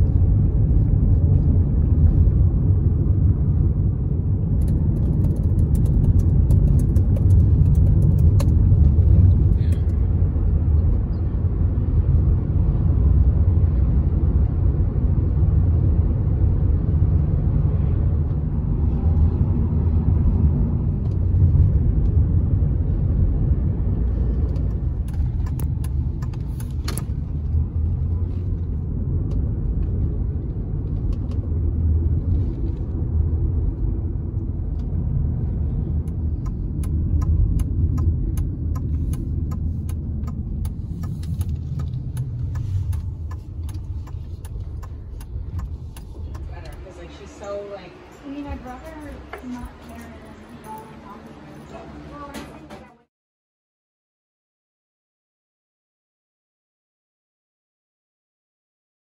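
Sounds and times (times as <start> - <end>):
car road noise rumble: 0.0 - 53.1
sharp ticks and crackles: 4.6 - 8.8, 36.0 - 46.8.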